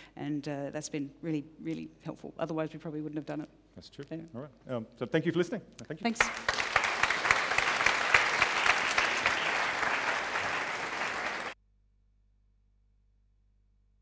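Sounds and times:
audience applauding: 0:06.1 - 0:11.6.

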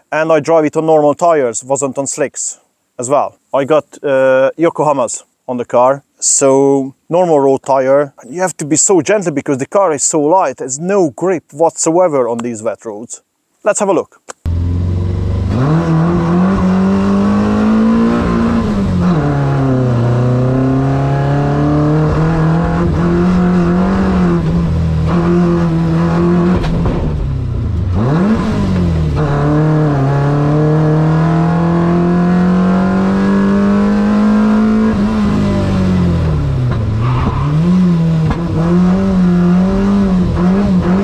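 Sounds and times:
race car engine accelerating: 0:14.5 - 0:41.0.

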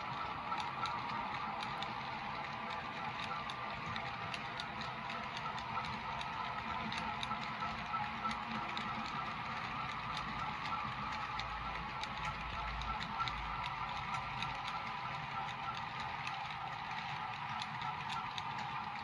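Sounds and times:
model train running hum: 0:00.0 - 0:19.0.

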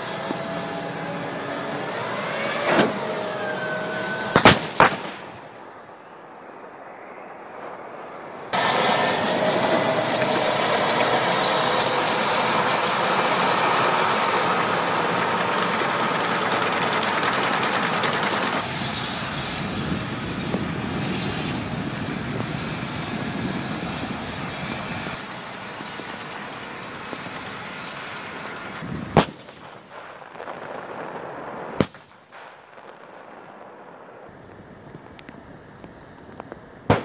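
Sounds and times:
tank engine rumble: 0:00.0 - 0:04.5, 0:08.3 - 0:29.8
sharp gunshots: 0:04.3 - 0:05.4.

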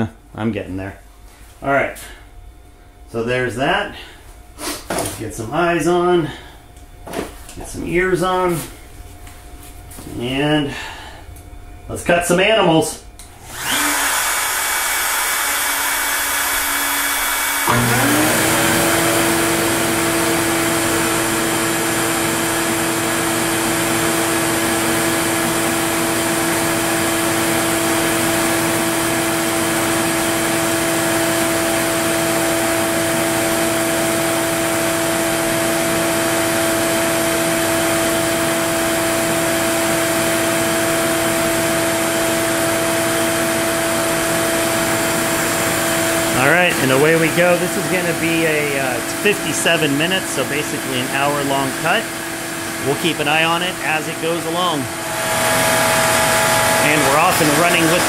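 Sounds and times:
dust vacuum running: 0:03.0 - 0:58.0
router spindle whine: 0:13.5 - 0:58.0.

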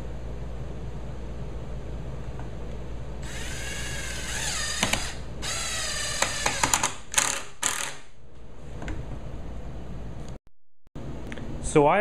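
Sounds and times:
power drill motor whining: 0:03.2 - 0:08.0
screw clicking as it bites: 0:04.4 - 0:08.0.

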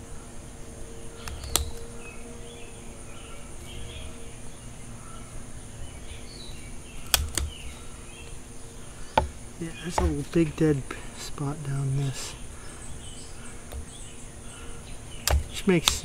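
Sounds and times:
high drone of insects: 0:00.0 - 0:16.0
pruning shears snipping: 0:01.2 - 0:01.8, 0:07.0 - 0:07.7, 0:15.2 - 0:16.0.

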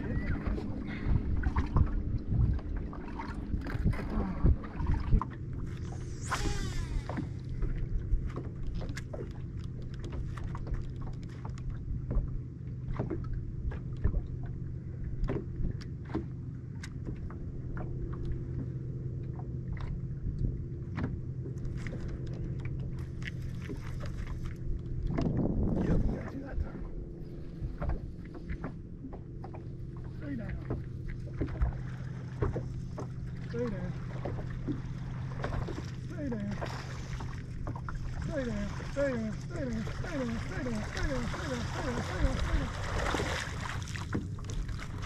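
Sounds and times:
electric trolling motor hum: 0:00.0 - 0:09.9
knocks and taps on boat: 0:07.1 - 0:26.8, 0:27.5 - 0:45.0.

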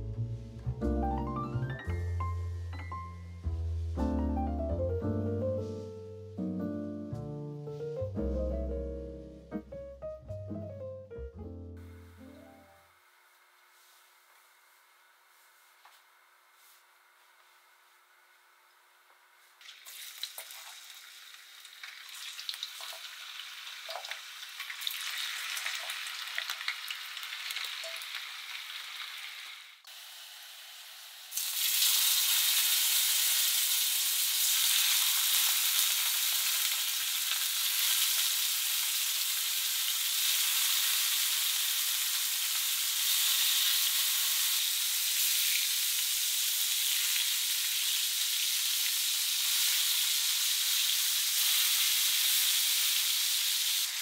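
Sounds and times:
meat sizzling in a frying pan: 0:19.6 - 0:54.0.

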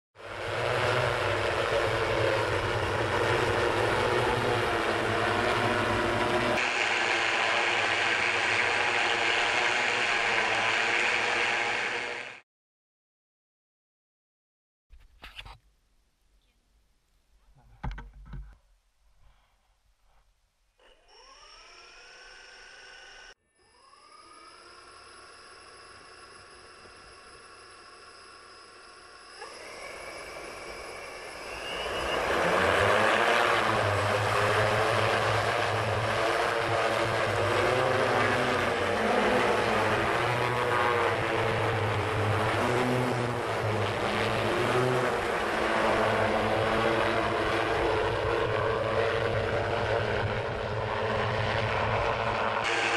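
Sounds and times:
multicopter propellers droning: 0:00.2 - 0:12.4, 0:21.1 - 0:52.9
propeller wash rushing: 0:00.2 - 0:12.4, 0:25.2 - 0:52.9.

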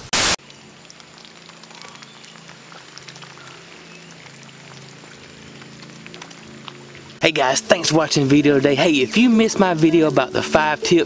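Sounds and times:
loud burst of noise: 0:00.0 - 0:00.4
light rain pattering: 0:00.4 - 0:11.0.

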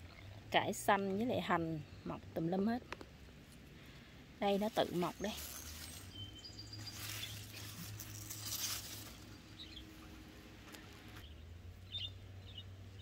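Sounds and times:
leaves rustling: 0:03.4 - 0:11.3
faint bird chirps: 0:04.8 - 0:08.8.

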